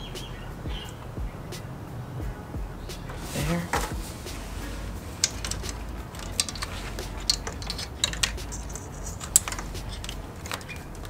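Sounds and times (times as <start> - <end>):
small clicks and light rattles: 5.0 - 11.0.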